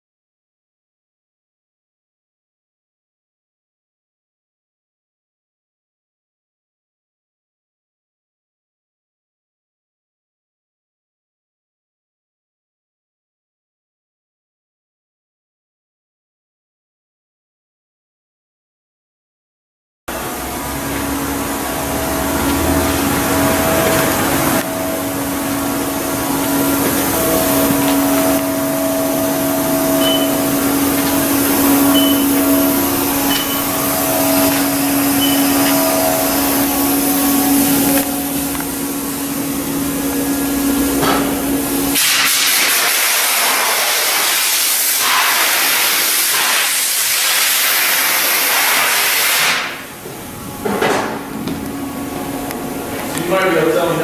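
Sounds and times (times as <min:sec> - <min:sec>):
machine hum with hiss: 0:20.1 - 0:54.0
short high beeps: 0:27.0 - 0:38.4.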